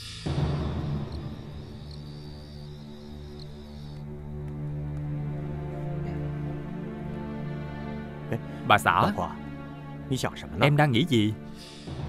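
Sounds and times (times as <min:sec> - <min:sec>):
sudden hiss: 0:00.0 - 0:04.2.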